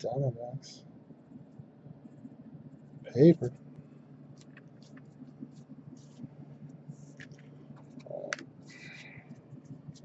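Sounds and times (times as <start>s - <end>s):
trading cards clicking and sliding: 4.3s - 6.3s.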